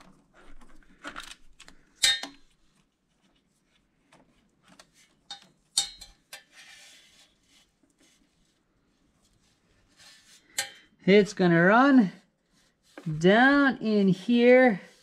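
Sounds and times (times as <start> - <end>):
metal wire clinking against parts: 2.0 - 2.4, 5.2 - 6.6, 10.4 - 10.9
scraping rustle: 6.4 - 10.6.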